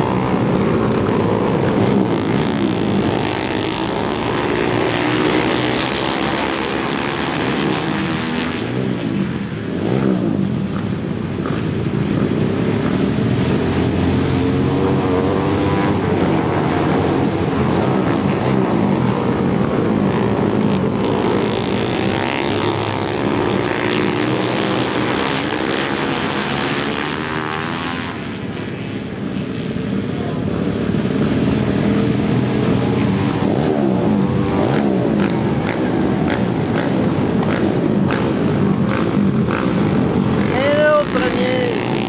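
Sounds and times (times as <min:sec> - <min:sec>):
racing motorcycles engines: 0:00.0 - 0:42.0.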